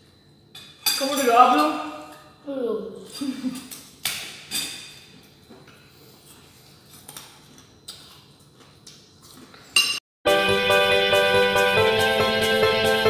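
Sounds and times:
spoons clinking on plates: 0.5 - 2.4
guitar background music: 10.3 - 13.0.

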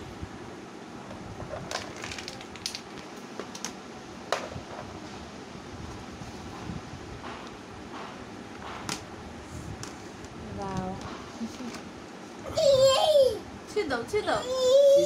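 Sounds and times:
plastic parts clicking and knocking: 1.6 - 4.5.

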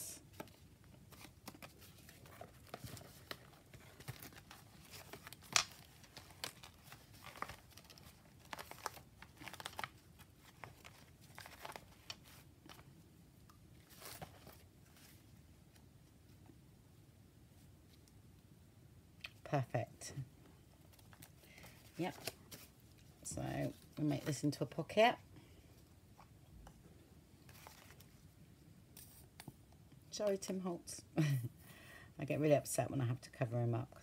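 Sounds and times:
paper rustling and crinkling: 0.3 - 13.0, 13.7 - 15.8, 20.8 - 24.8, 27.4 - 28.3.

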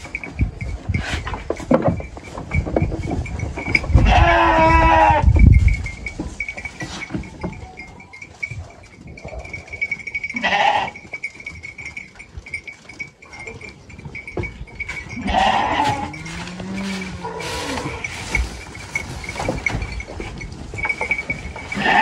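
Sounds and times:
sheep munching hay: 0.1 - 7.2, 14.5 - 22.0
sheep bleating: 10.4 - 11.0, 15.2 - 17.7.

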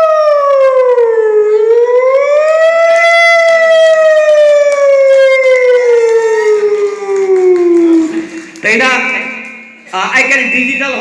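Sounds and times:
man imitating a siren: 0.0 - 8.2.

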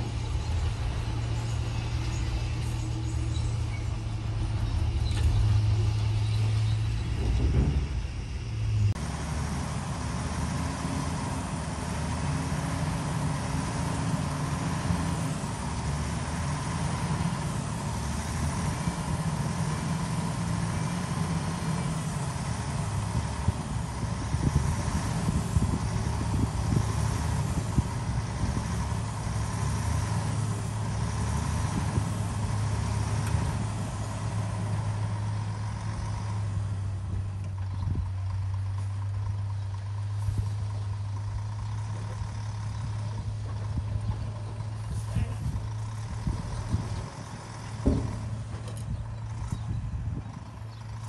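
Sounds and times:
diesel engine idling: 0.0 - 51.0
short knocks: 47.7 - 48.8.

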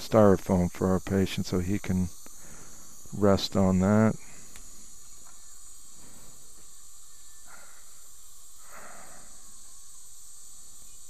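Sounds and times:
steady hiss: 0.0 - 11.0
soft breathy swells of noise: 7.4 - 9.8.

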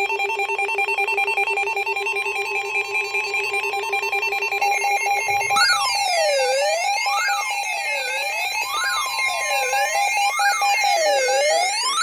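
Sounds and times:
high-pitched pulsing alarm beep: 0.1 - 12.0
rising and falling siren wail: 5.2 - 12.0.

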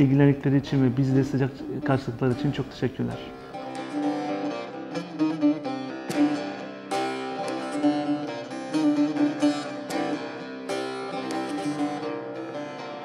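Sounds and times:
plucked long-necked lute: 1.4 - 13.0.

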